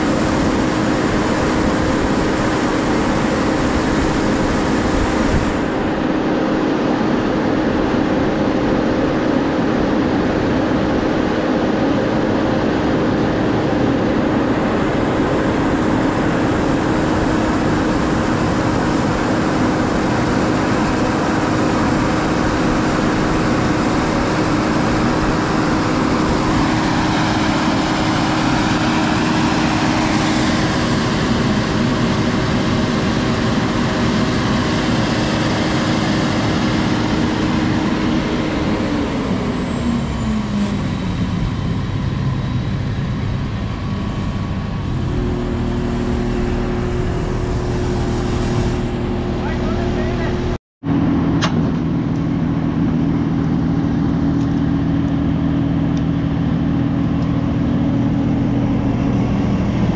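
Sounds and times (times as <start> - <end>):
heavy machinery engine running: 0.0 - 59.9.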